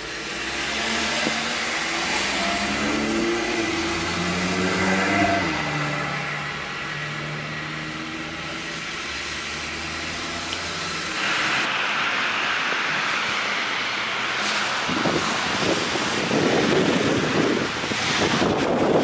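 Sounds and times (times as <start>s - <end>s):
steady rushing hiss: 10.5s - 19.0s.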